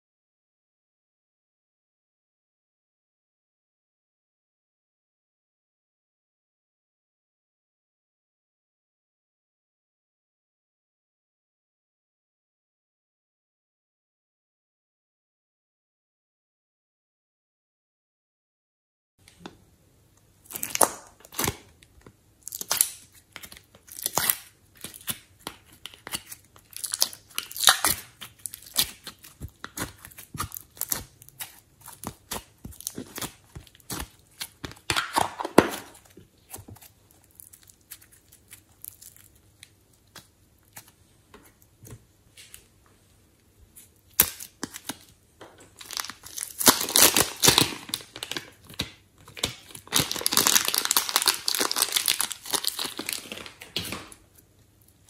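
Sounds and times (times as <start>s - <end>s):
sticky slime crackles and pops: 20.4s - 40.9s, 44.0s - 45.1s, 45.8s - 54.4s
plastic piping bag crinkling: 20.4s - 41.0s, 43.8s - 55.0s.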